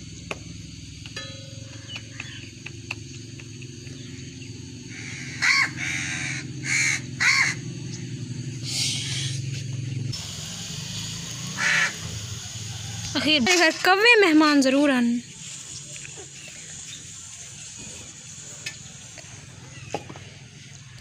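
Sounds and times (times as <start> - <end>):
crow cawing: 4.9 - 7.7, 11.6 - 12.0.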